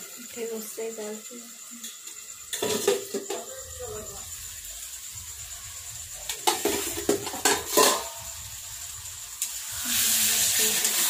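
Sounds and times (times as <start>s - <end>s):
loud sizzle of frying: 0.0s - 11.0s
metal ladle knocking on pan: 2.5s - 3.5s, 6.3s - 8.3s.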